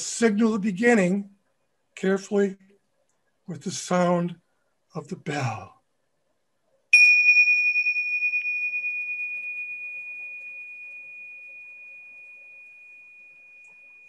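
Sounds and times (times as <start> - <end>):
tingsha cymbals ringing: 6.9 - 14.0.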